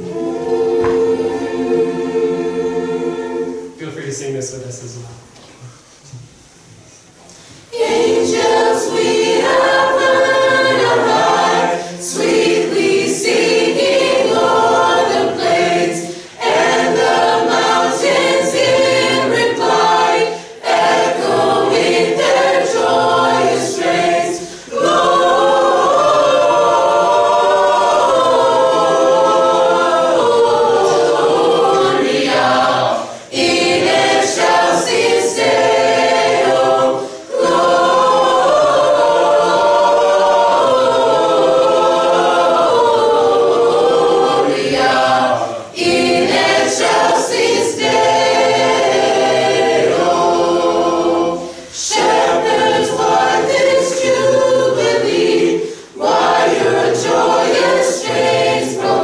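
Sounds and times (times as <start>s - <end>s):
choir singing in parts: 0.0s - 4.0s, 7.3s - 59.0s.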